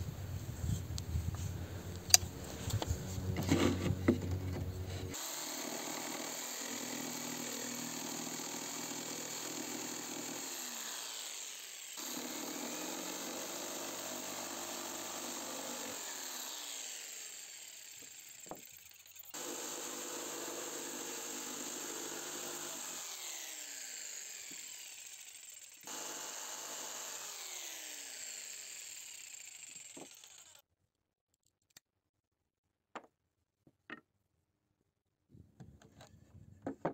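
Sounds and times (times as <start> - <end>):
jigsaw sawing wood: 2.0 - 30.6.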